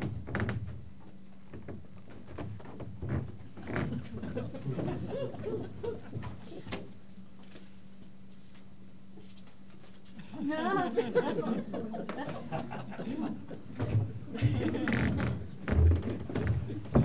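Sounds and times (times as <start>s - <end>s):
steady low hum: 0.0s - 17.0s
wooden furniture knocking: 13.8s - 17.0s.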